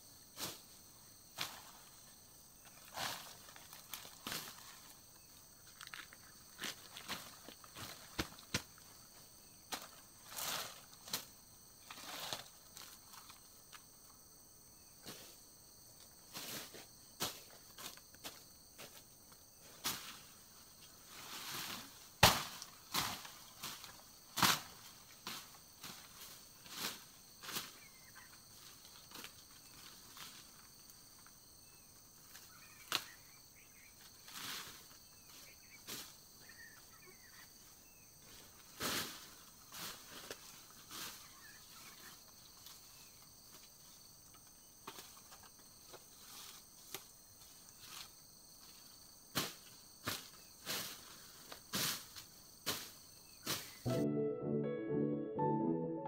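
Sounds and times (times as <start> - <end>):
faint insect chirps: 0.0 - 53.8
high insect hum: 0.0 - 53.8
palm fronds and grass rustling: 0.3 - 14.0, 15.0 - 53.8
machete chopping undergrowth: 22.2 - 25.5.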